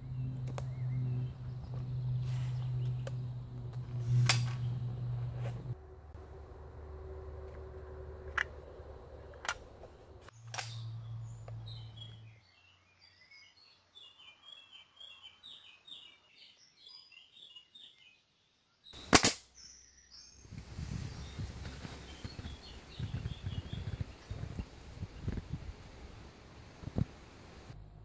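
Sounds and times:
birds chirping: 0.0s - 5.8s, 8.6s - 18.2s, 18.9s - 28.0s
nail gun firing bang: 19.1s - 19.4s.

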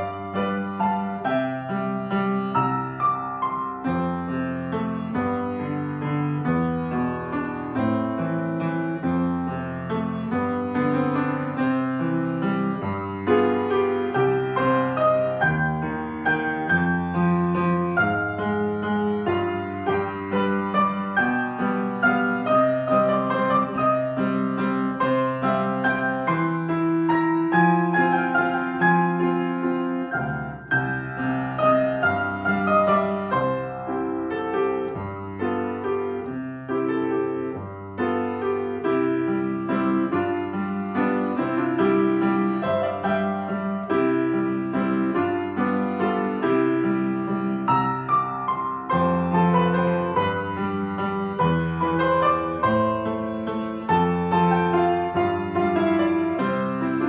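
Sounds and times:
piano waltz: 0.0s - 57.0s.

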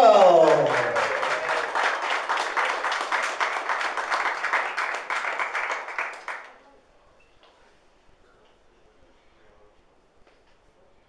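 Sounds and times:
crowd applauding: 0.0s - 6.6s.

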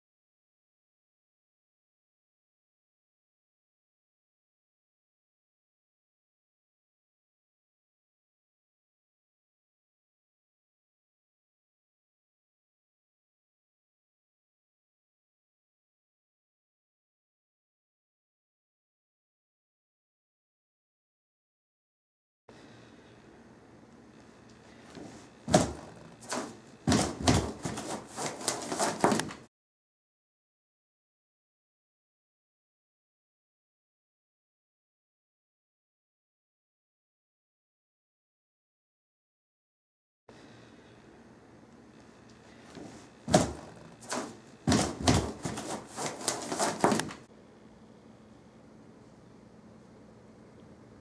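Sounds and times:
rubbing and knocking on balloon: 24.9s - 29.4s, 42.7s - 47.2s.

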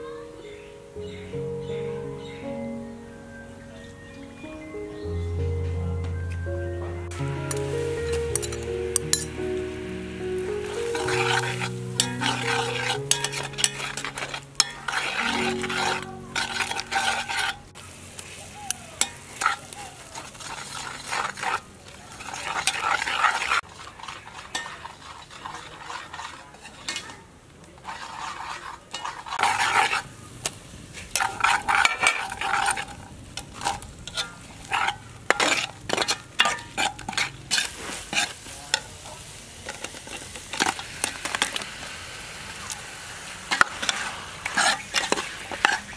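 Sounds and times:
paste sizzling: 7.0s - 45.9s
metal ladle scraping pot: 7.4s - 9.6s, 10.3s - 17.8s, 19.0s - 27.2s, 27.8s - 30.2s, 31.0s - 38.9s, 43.5s - 45.9s.

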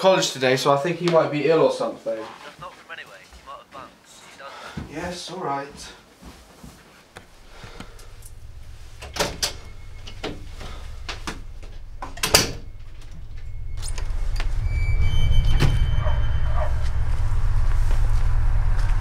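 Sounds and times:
low rumble: 7.2s - 19.0s
door shutting with a bang: 9.0s - 14.2s, 14.9s - 17.0s.

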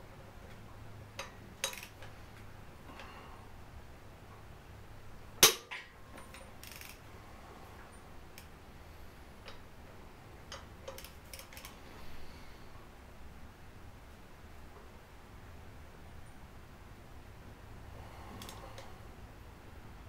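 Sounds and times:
sharp metallic crack: 5.4s - 5.9s.

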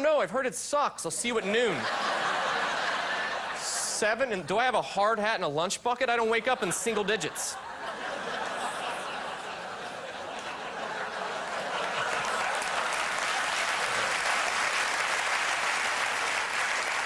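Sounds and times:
audience applauding: 8.6s - 17.0s.

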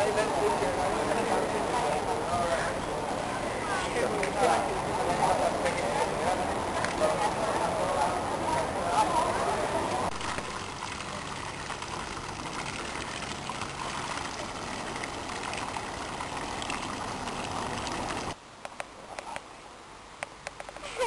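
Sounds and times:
fountain water splashing: 0.0s - 21.0s.

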